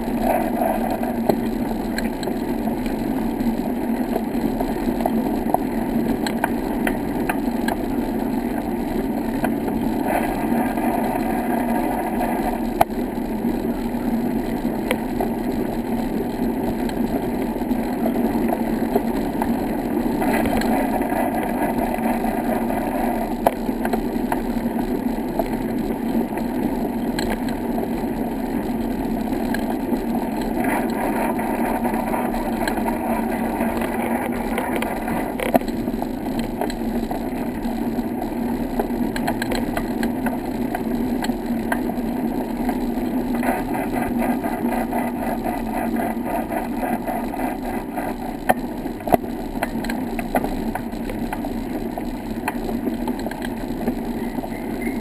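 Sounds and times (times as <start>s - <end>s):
wind on camera: 0.0s - 55.0s
clicks and knocks from bumps: 42.6s - 54.1s.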